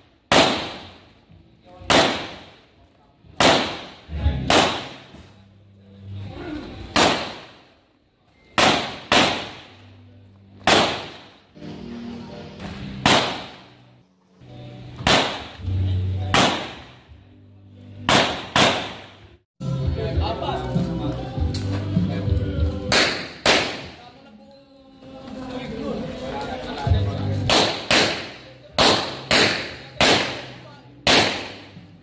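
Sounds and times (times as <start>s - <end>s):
pistol shots with echo: 0.3s - 1.1s, 1.8s - 2.7s, 3.4s - 5.2s, 6.9s - 7.8s, 8.5s - 9.8s, 10.6s - 11.4s, 13.0s - 13.8s, 15.0s - 15.6s, 16.3s - 17.0s, 18.1s - 19.2s, 22.9s - 24.0s, 27.5s - 31.8s.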